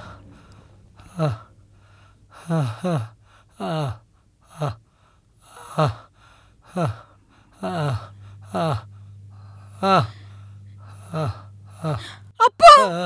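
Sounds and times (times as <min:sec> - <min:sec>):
man sobbing: 0:01.1 - 0:01.5, 0:02.4 - 0:04.8, 0:05.6 - 0:08.9, 0:09.8 - 0:10.1, 0:10.9 - 0:13.0.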